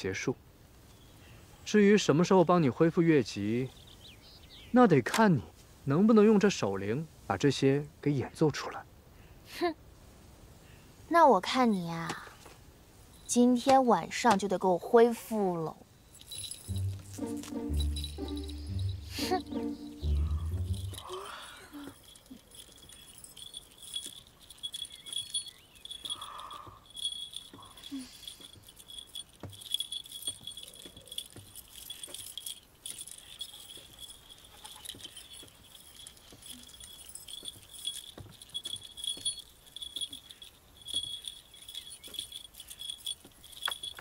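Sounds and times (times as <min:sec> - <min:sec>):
hand bells jingling: 0:15.9 - 0:44.0.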